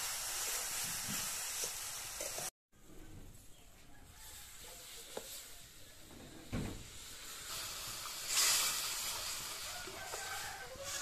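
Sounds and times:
water sizzling in hot wok: 0:00.0 - 0:02.5, 0:06.7 - 0:11.0.

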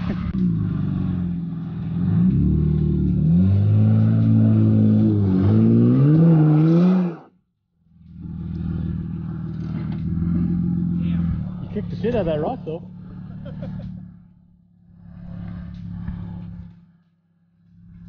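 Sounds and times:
truck engine revving under load: 0:00.0 - 0:07.3, 0:08.0 - 0:18.0.

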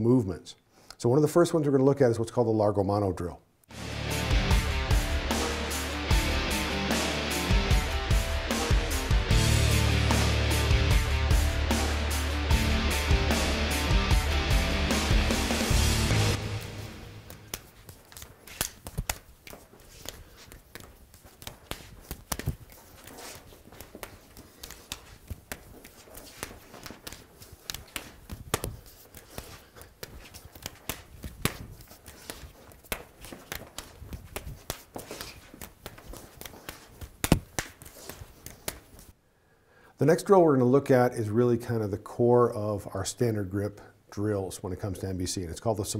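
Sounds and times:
hands and forearms slapping: 0:04.5 - 0:39.2
footsteps shuffling on floor: 0:17.1 - 0:39.1.

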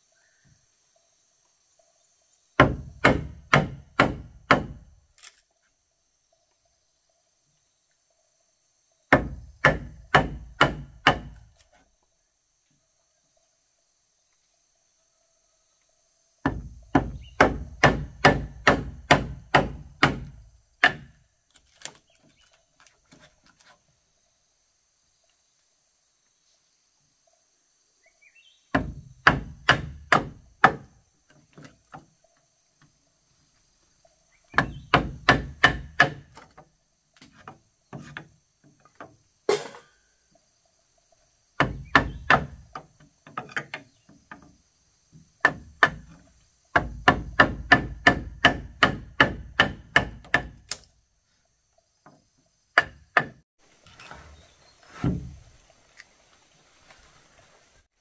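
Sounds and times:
hammer striking wood: 0:02.6 - 0:04.9, 0:09.1 - 0:11.5, 0:16.4 - 0:21.2, 0:28.7 - 0:30.9, 0:34.5 - 0:36.5, 0:41.6 - 0:44.5, 0:45.4 - 0:50.9, 0:52.8 - 0:53.4, 0:55.0 - 0:55.4.

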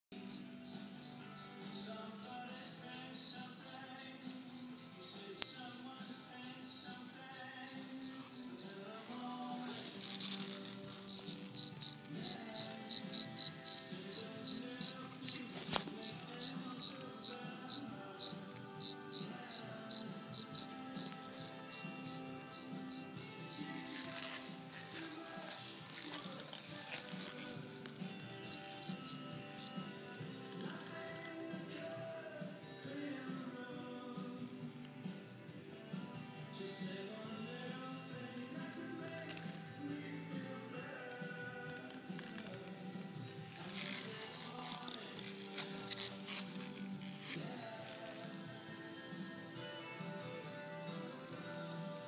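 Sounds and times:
cricket chirping: 0:00.2 - 0:08.8, 0:11.1 - 0:24.7, 0:25.4 - 0:25.6, 0:27.5 - 0:27.7, 0:28.5 - 0:29.8.

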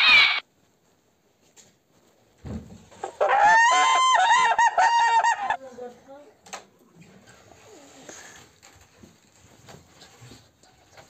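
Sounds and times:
animal call: 0:00.0 - 0:00.4, 0:03.0 - 0:05.6.

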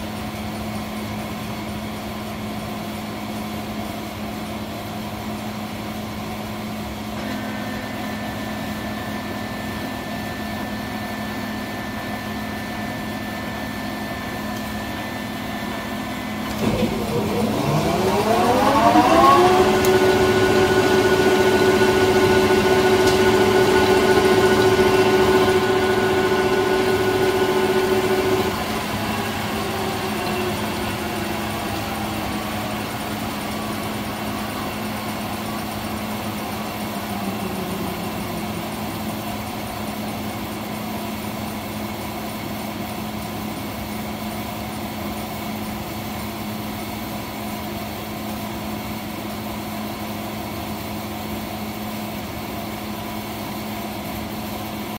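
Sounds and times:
steady hum: 0:07.0 - 0:41.6
lathe gear whine falling: 0:07.1 - 0:41.2.

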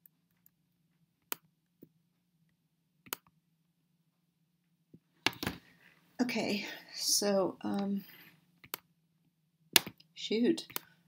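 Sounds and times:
computer mouse clicks: 0:03.0 - 0:03.3, 0:08.6 - 0:08.9.

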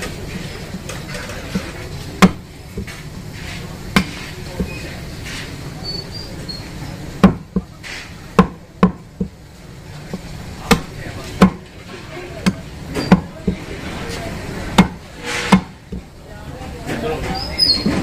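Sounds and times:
cleaver chopping meat on wood: 0:02.2 - 0:02.9, 0:04.0 - 0:04.2, 0:07.2 - 0:07.7, 0:08.4 - 0:09.4, 0:10.1 - 0:11.7, 0:14.7 - 0:16.0.

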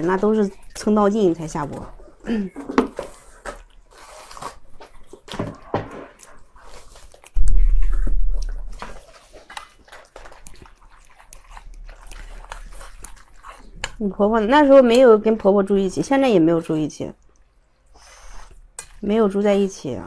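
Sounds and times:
wet clicks and squishes: 0:08.4 - 0:15.4, 0:17.1 - 0:17.6, 0:18.7 - 0:19.6.

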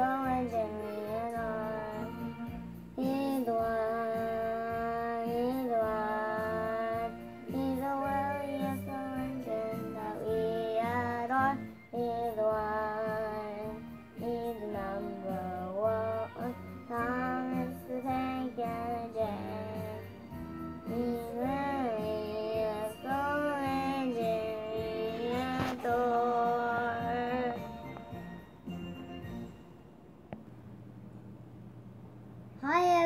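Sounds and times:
boy singing: 0:00.0 - 0:02.3, 0:03.0 - 0:20.1, 0:20.9 - 0:27.8.

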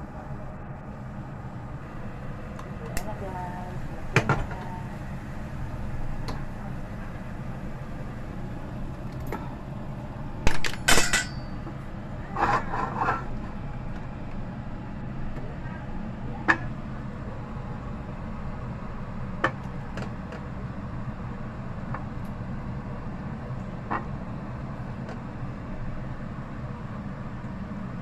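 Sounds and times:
steady low hum: 0:00.0 - 0:28.0
loud clatter with ringing: 0:10.5 - 0:11.6.

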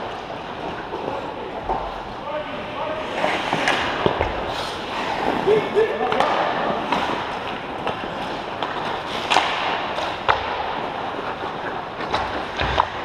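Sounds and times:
hockey sticks and puck clacking: 0:00.0 - 0:13.0
skates scraping ice: 0:00.0 - 0:13.0.

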